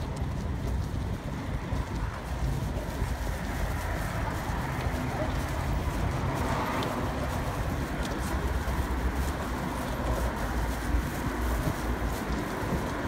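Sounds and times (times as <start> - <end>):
road traffic hum: 0.0 - 13.0
wind rumble on microphone: 0.0 - 13.0.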